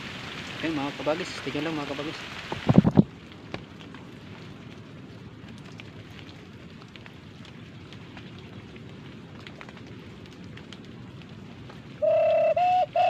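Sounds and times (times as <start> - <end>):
steady rain on leaves: 0.0 - 13.0
hand-blown bird call notes: 12.0 - 13.0.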